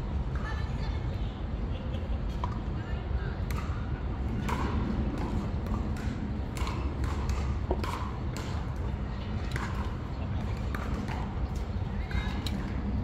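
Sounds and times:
paddles hitting plastic ball: 4.4 - 8.9.

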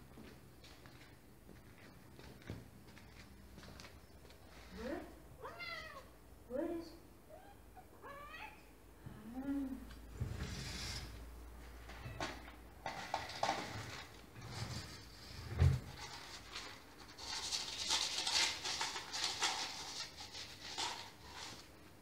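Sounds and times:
cat meowing: 5.4 - 6.1, 7.3 - 8.6
dry kibble rattling: 15.9 - 21.7.

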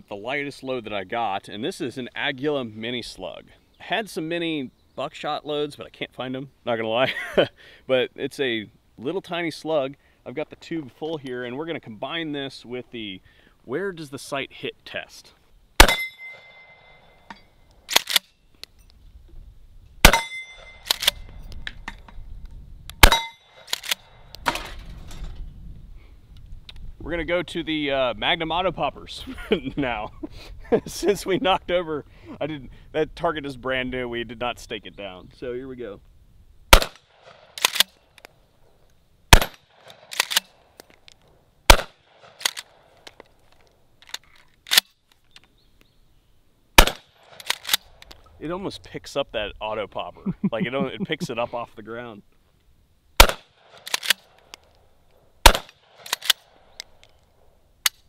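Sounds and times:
shotgun shots: 15.8 - 16.8, 20.0 - 21.3, 23.0 - 24.6, 36.7 - 38.0, 39.3 - 40.6, 41.7 - 42.8, 46.8 - 48.0, 53.2 - 54.4, 55.4 - 56.6
shotgun slide racking: 17.9 - 18.3, 20.8 - 21.2, 23.0 - 24.7, 37.6 - 38.0, 39.9 - 40.6, 42.4 - 43.2, 47.3 - 48.0, 53.8 - 54.5, 56.0 - 57.2.

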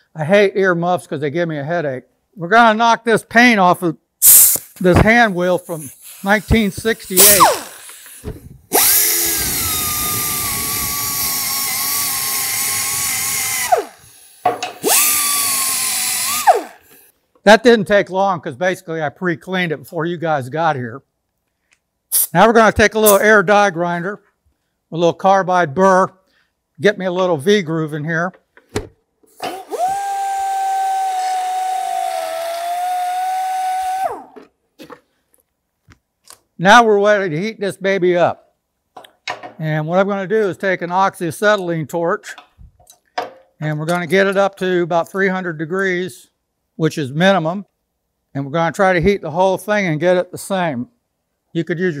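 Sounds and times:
exhaust air hiss: 4.2 - 14.5
air die grinder whining: 7.1 - 14.2, 14.8 - 16.9, 29.4 - 34.4.

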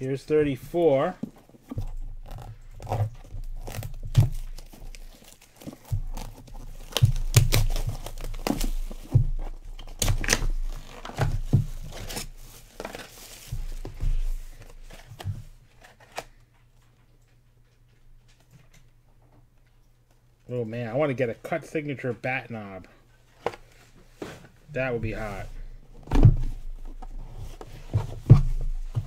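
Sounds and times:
dull handling thumps: 0.0 - 12.0, 24.2 - 29.0
plastic wrap tearing and crinkling: 2.2 - 15.1.

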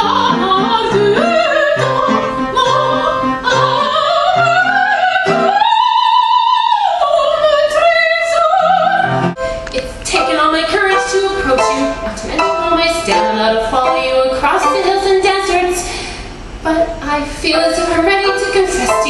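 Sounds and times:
woman singing operatic soprano: 0.0 - 15.9, 16.7 - 19.0
repeating accompaniment chords: 9.1 - 15.7, 17.5 - 19.0.

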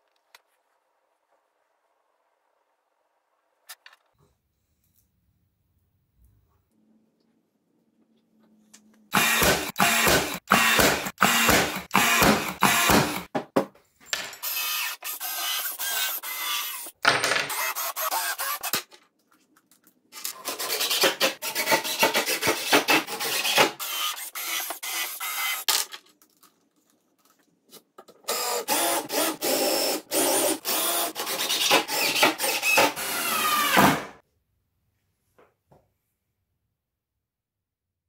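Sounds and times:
cordless drill driving screws: 9.1 - 13.3, 17.5 - 18.8, 22.6 - 25.6, 28.3 - 34.0.

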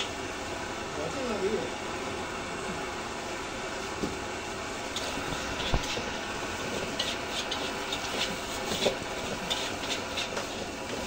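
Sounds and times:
metal spatula scraping a wok: 6.7 - 11.0.

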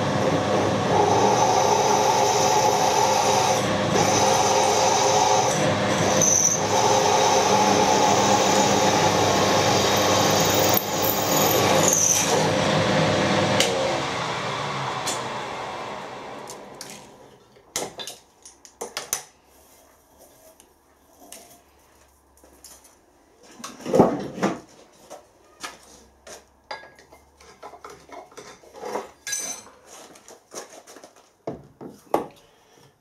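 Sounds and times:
milling machine drilling: 0.2 - 16.6
metallic clinks and clanks: 29.2 - 29.7.

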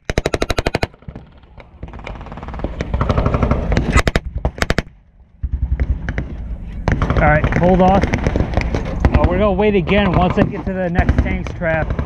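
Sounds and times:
machine gun firing: 0.0 - 12.0.

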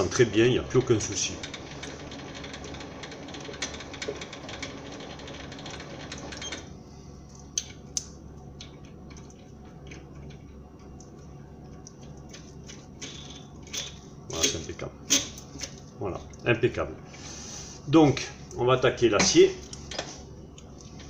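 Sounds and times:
lathe running: 0.0 - 6.4.

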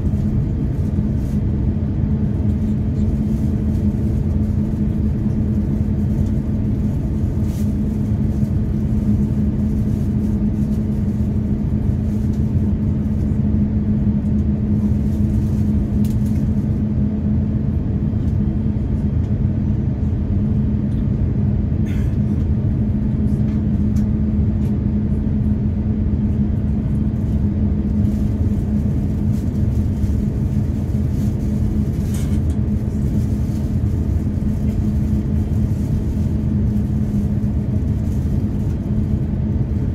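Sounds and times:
jet engines low rumble in cabin: 0.0 - 39.9.

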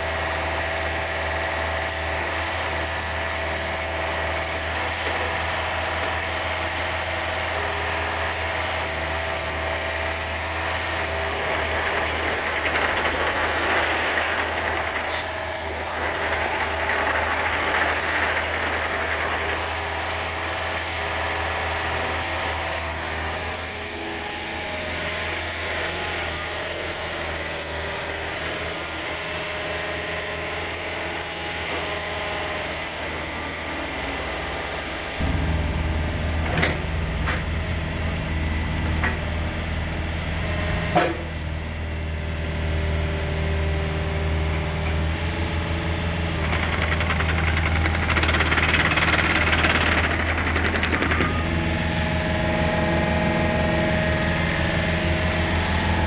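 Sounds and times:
diesel engine running: 0.0 - 56.0
hydraulics working: 10.2 - 21.3, 23.6 - 41.4.

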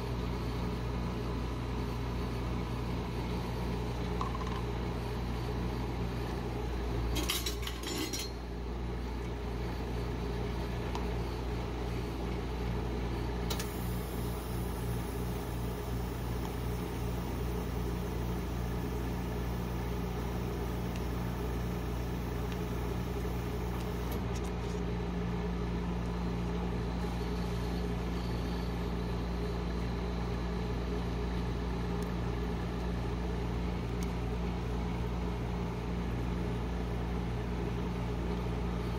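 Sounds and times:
refrigeration compressor hum: 0.0 - 38.9
metal spatula clinking and scraping: 7.2 - 8.4.

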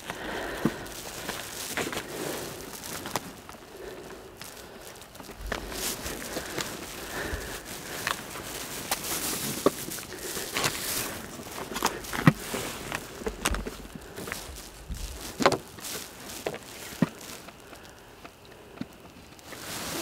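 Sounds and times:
fishing gear rustling and knocking: 0.0 - 19.7.

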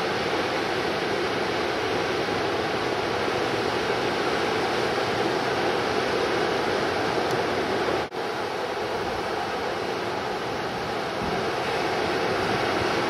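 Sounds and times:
ocean surf breaking: 0.0 - 13.0.

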